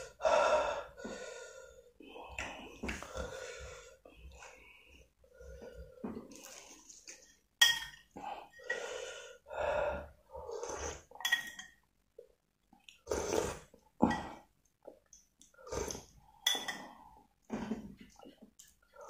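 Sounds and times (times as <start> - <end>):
slurping sips: 10.5 - 11.2, 12.9 - 13.8, 15.5 - 16.2.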